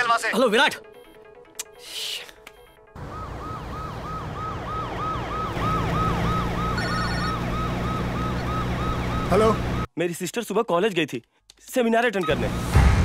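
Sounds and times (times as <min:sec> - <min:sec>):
siren yelping: 0:02.6 - 0:09.9.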